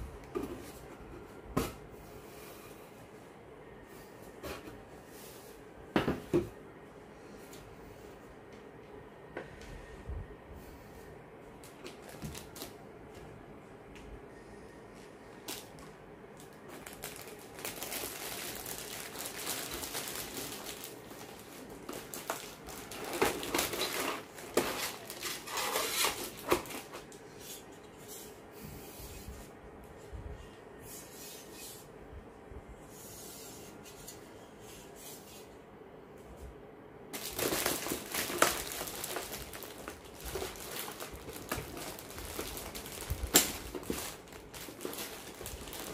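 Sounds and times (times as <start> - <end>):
plastic bags crinkling: 11.6 - 12.8, 16.4 - 27.2, 37.2 - 45.9.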